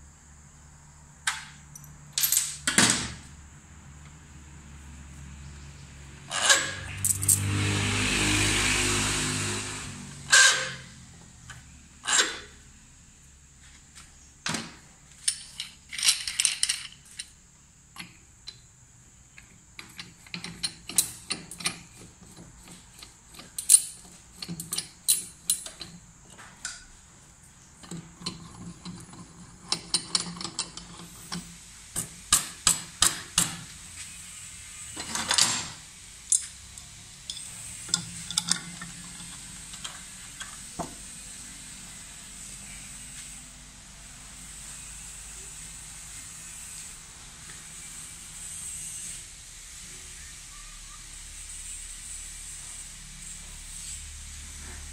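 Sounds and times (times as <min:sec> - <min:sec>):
metal scrape: 0:09.2 - 0:11.0
metal tools clicking and clanking: 0:15.2 - 0:17.4, 0:19.8 - 0:26.0, 0:27.8 - 0:31.5, 0:35.0 - 0:40.7.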